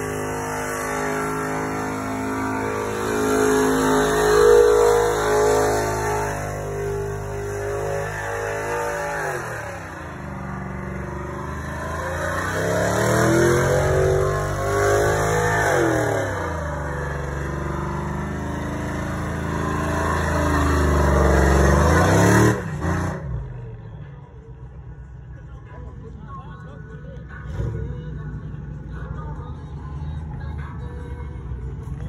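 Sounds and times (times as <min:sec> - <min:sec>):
tires screeching: 0:00.0 - 0:23.7
truck engine revving: 0:00.0 - 0:23.7.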